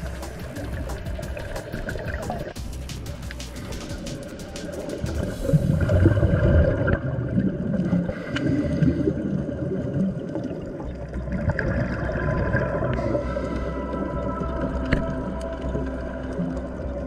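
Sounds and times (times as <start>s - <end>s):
underwater bubbles gurgling: 0.0s - 2.6s, 3.3s - 17.0s.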